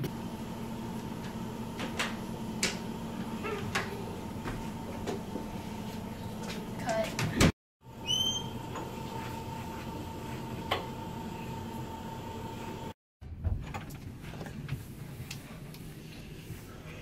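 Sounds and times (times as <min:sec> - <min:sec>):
footsteps on carpeted stairs: 0:03.6 - 0:07.5.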